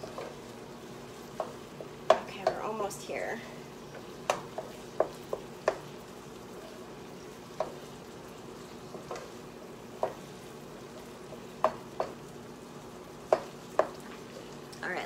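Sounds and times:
meat sizzling in a skillet: 0.0 - 15.0
wooden spatula clacking on pan: 1.3 - 2.7, 4.0 - 6.0, 7.5 - 7.9, 10.0 - 10.3, 11.6 - 12.2, 13.2 - 14.0.

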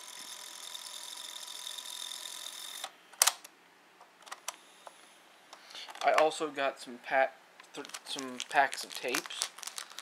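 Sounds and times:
cassette recorder motor whine: 0.0 - 3.0.

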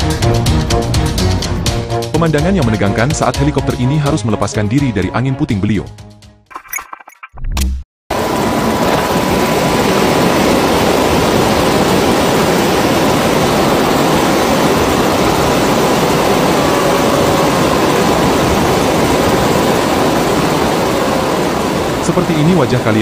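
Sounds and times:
helicopter engine and rotor noise: 8.1 - 23.0
rush of wind: 8.1 - 23.0.

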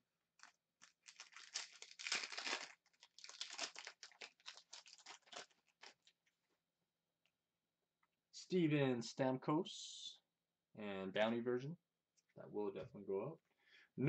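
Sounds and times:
wrapper crinkling and tearing: 0.4 - 6.3.

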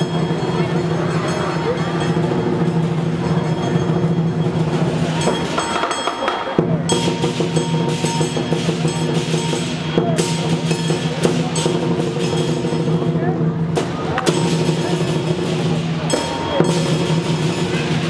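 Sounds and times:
cymbals crashing: 0.0 - 18.0
large drum beaten steadily: 0.0 - 18.0
gong ringing: 14.4 - 18.0.

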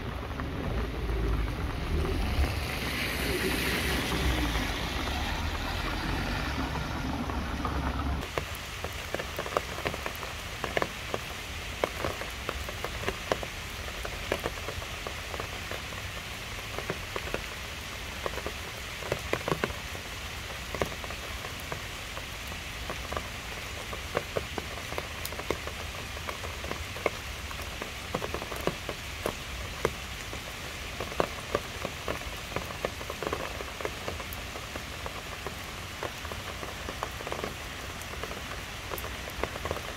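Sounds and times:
car low rumble: 0.0 - 8.2
loud raindrops close by: 0.0 - 39.9
rain falling on leaves: 0.0 - 39.9.

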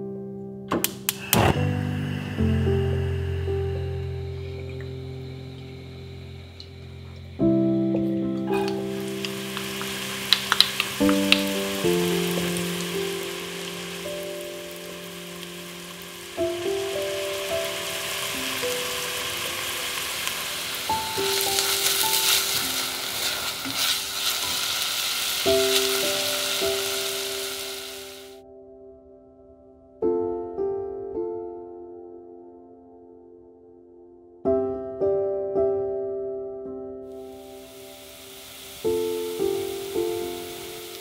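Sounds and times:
soft piano music: 0.0 - 41.0
sharp clicks: 0.7 - 1.6
onion sizzling in hot oil: 8.4 - 28.4, 37.4 - 41.0.

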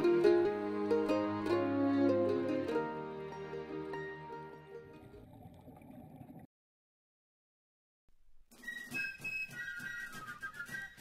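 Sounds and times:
soft background music: 0.0 - 5.2.

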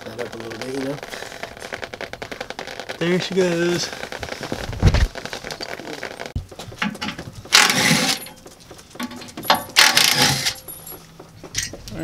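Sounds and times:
hand tool scraping and rattling: 5.5 - 12.0.

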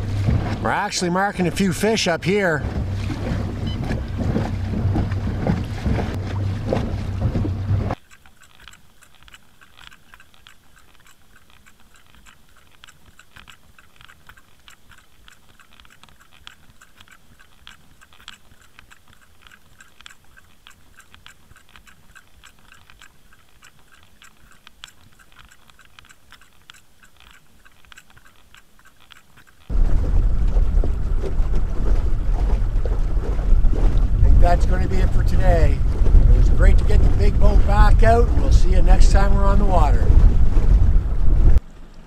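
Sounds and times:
boat engine: 0.0 - 42.0
small irregular crackles and clicks: 5.5 - 29.8
wind noise: 29.7 - 41.6.

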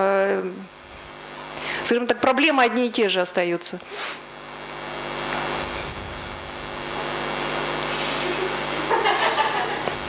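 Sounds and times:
noisy drone with low hum: 0.0 - 10.0.

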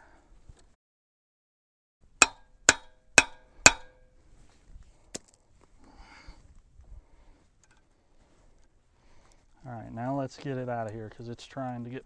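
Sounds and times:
metal-on-metal taps: 2.2 - 4.0.

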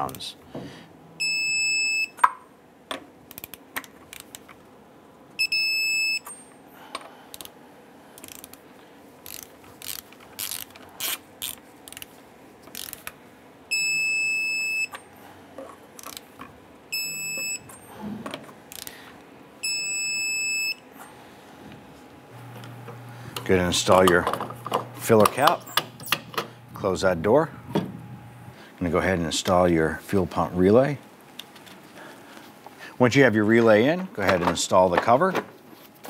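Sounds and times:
torque wrench ratchet clicks: 8.2 - 8.6, 9.2 - 12.0, 12.7 - 13.1
high wrench beeps: 13.7 - 15.0, 16.9 - 17.7, 19.6 - 20.8.

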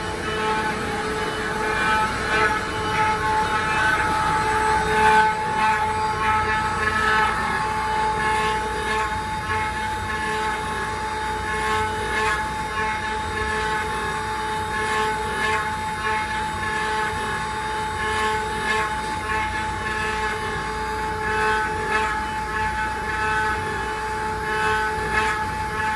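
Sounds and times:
router bits cutting wood: 0.0 - 25.9
router spindles whining: 0.0 - 25.9.

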